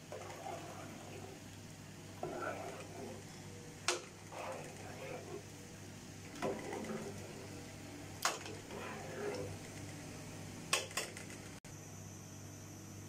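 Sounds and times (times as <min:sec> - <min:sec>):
spoon stirring rice: 0:00.0 - 0:01.4, 0:02.2 - 0:05.5, 0:06.3 - 0:09.8.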